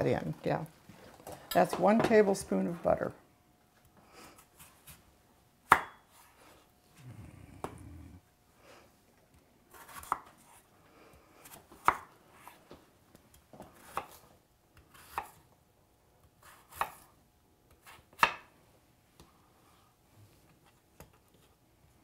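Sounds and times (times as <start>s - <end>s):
knife chopping on wooden board: 5.7s - 6.0s, 9.8s - 10.3s, 17.8s - 18.4s.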